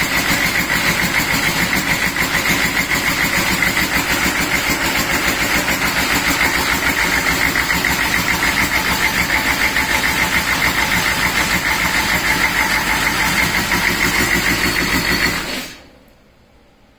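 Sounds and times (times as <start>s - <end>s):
diesel engine running: 0.0s - 15.9s.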